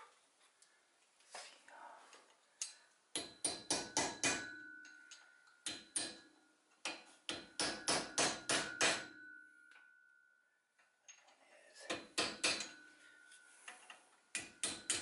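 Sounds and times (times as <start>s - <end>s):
hammer striking metal: 3.2s - 9.9s, 11.9s - 12.9s, 14.3s - 15.0s.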